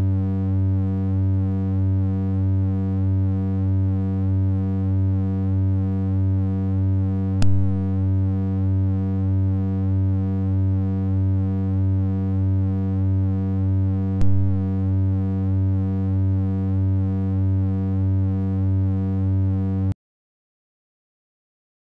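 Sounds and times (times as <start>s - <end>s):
low synthesizer drone: 7.2s - 11.8s, 12.5s - 18.8s
sharp clicks: 7.4s - 8.0s.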